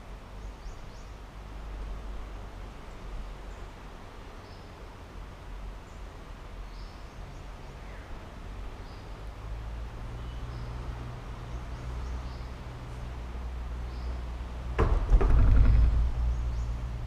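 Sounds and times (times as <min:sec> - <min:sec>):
faint high bird chirps: 0:10.2 - 0:10.7
low rumble: 0:14.8 - 0:17.0.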